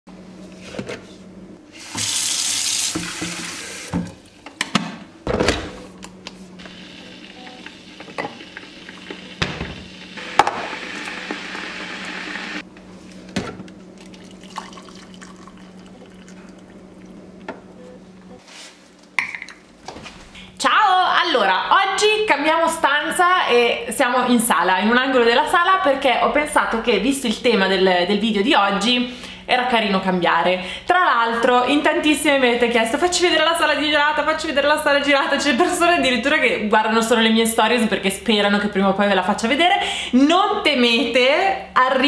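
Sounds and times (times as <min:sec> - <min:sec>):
water running: 0:01.8 - 0:04.1, 0:06.6 - 0:12.6, 0:14.0 - 0:17.2
low steady hum: 0:03.8 - 0:36.8.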